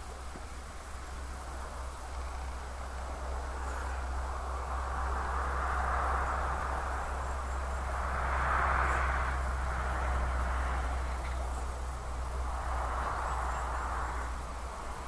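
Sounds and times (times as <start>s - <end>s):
constant low hum: 0.0s - 15.0s
steady hiss: 0.0s - 15.0s.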